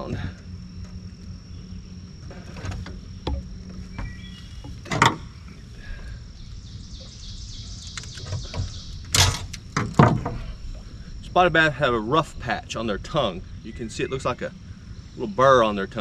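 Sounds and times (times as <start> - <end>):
high insect drone: 0.0 - 16.0
bird chirps: 3.0 - 9.1, 13.3 - 15.6.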